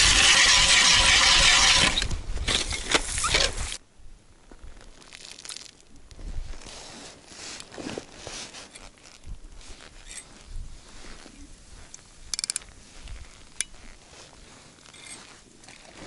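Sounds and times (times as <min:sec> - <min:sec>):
hand ice auger grinding ice: 0:00.0 - 0:03.8, 0:14.7 - 0:16.0
ice chips crunching and scraping: 0:04.7 - 0:05.9.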